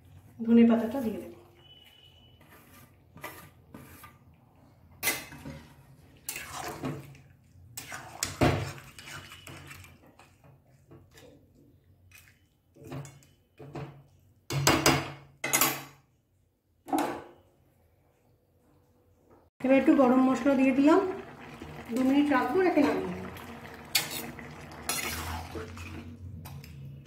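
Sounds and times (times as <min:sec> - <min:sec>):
spatula scraping curry in pan: 0:00.8 - 0:04.4, 0:05.2 - 0:06.9, 0:07.8 - 0:11.2, 0:24.0 - 0:26.0.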